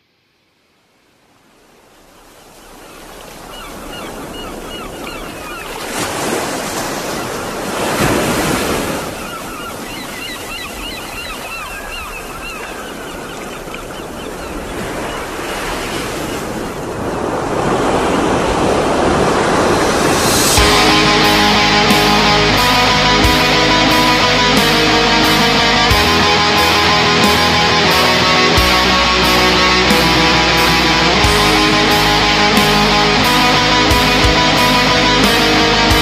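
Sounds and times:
ocean waves rushing: 1.8 - 36.0
high wavy chirping calls: 20.1 - 36.0.

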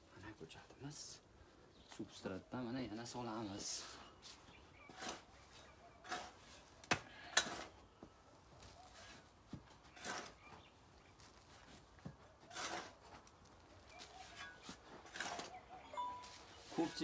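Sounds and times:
soft swishes of soil: 3.6 - 6.7, 16.2 - 17.0.

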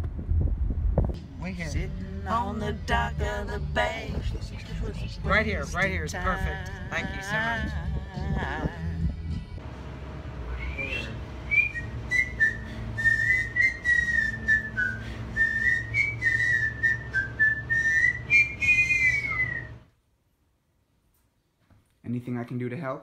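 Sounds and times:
steady low hum: 0.0 - 20.6
man whistling a melody: 10.5 - 19.8.

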